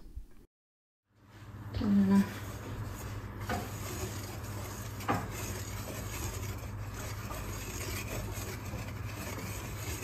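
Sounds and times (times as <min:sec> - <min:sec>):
steady low hum: 0:01.1 - 0:10.0
whisk scraping in glass bowl: 0:02.2 - 0:10.0.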